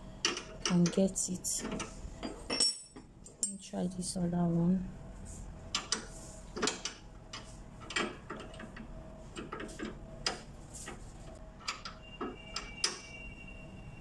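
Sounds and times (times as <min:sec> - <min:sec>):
spanner clicking on metal: 0:00.2 - 0:03.6.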